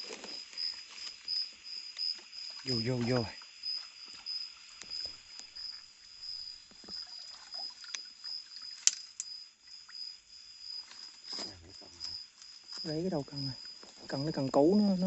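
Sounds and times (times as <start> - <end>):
high insect trill: 0.0 - 15.0
water splashing and dripping: 6.6 - 9.2.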